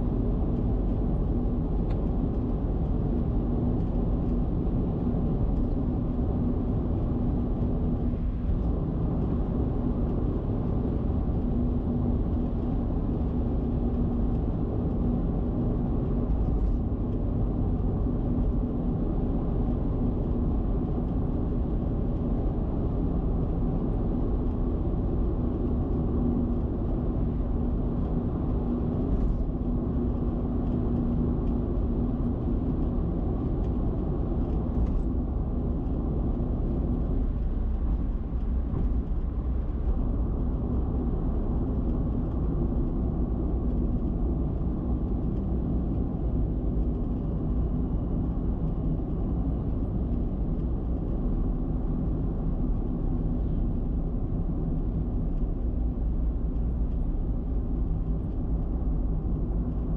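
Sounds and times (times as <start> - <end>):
car tyre and wind noise: 0.0 - 59.9.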